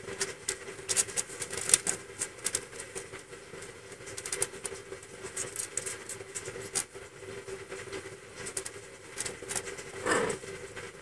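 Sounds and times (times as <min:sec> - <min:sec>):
faint hum: 0:09.7 - 0:11.0
kittens suckling: 0:10.0 - 0:10.4.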